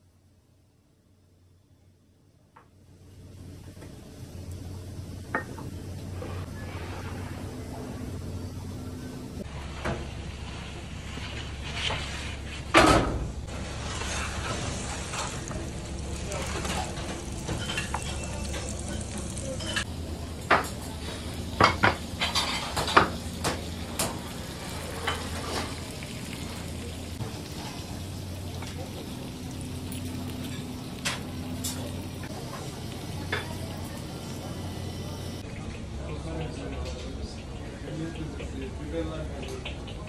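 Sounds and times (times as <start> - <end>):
kitchen low rumble: 0.0 - 40.0
seafood sizzling in hot dish: 13.5 - 35.4
metal utensils clinking on dish: 16.6 - 19.9, 21.7 - 23.2.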